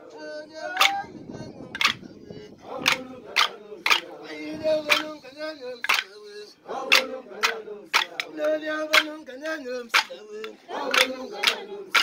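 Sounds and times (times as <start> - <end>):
group singing held notes: 0.0 - 12.0
loud sharp claps: 0.7 - 1.0, 1.8 - 2.0, 2.8 - 4.2, 4.8 - 5.2, 5.8 - 6.2, 6.9 - 12.0.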